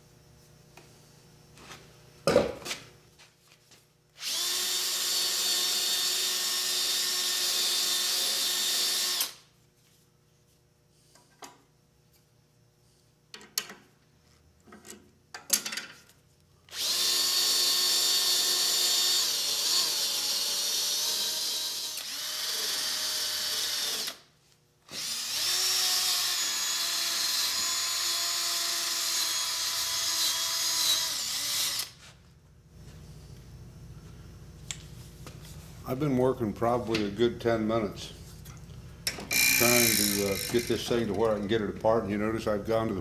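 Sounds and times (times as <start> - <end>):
drill spinning wire brush on metal: 4.2 - 9.5, 16.7 - 24.2, 24.9 - 32.1, 39.3 - 41.7.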